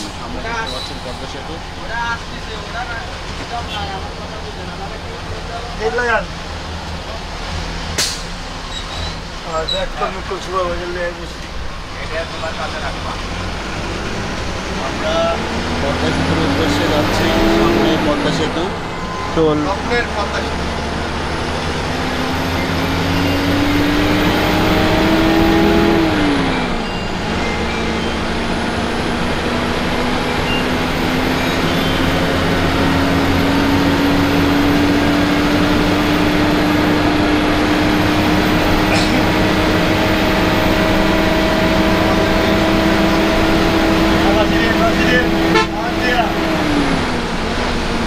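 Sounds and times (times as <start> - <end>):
bus engine accelerating: 0.0 - 48.0
road noise: 0.0 - 48.0.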